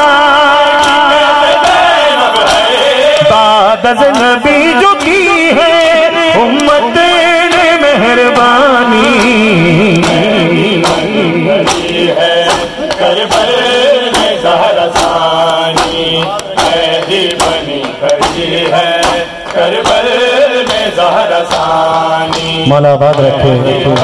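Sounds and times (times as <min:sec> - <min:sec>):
men chanting a lament: 0:00.0 - 0:24.0
hands striking chests: 0:08.4 - 0:22.6.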